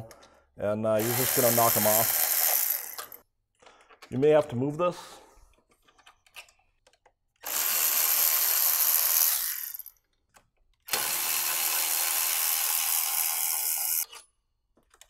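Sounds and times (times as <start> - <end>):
power ratchet spinning: 1.0 - 3.2, 7.4 - 9.9, 10.8 - 14.2.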